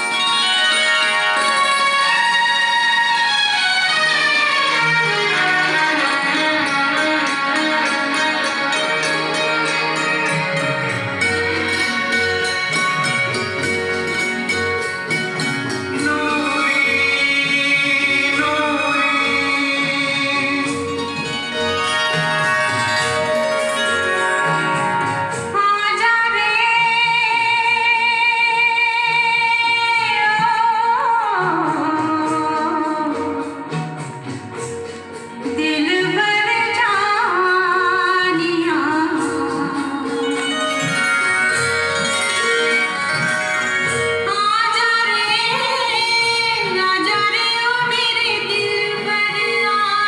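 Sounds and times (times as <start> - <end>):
instrumental backing music: 0.0 - 50.0
woman singing with vibrato: 15.9 - 21.3, 25.5 - 33.8, 35.5 - 41.3, 43.8 - 50.0.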